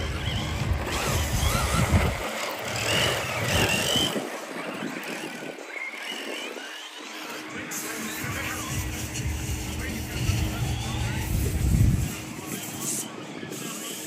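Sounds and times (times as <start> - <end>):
electric motors whining: 0.0 - 14.0
tyre and track noise: 0.0 - 14.0.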